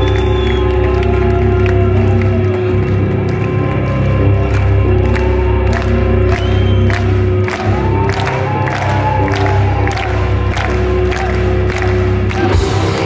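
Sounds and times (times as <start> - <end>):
crowd cheering: 0.0 - 13.0
metal band playing live: 11.7 - 13.0.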